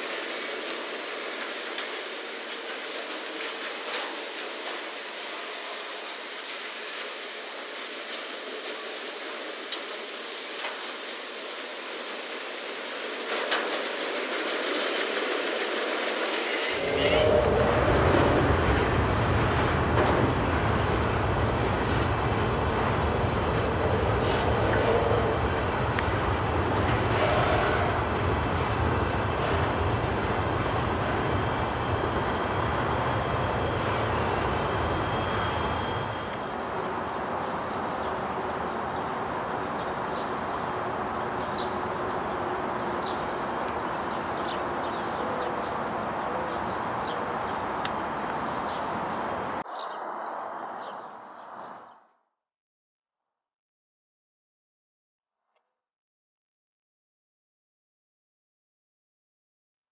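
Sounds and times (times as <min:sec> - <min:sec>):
train wheels rumbling on rail: 0:00.0 - 0:49.6
high wheel squeal: 0:27.1 - 0:36.9.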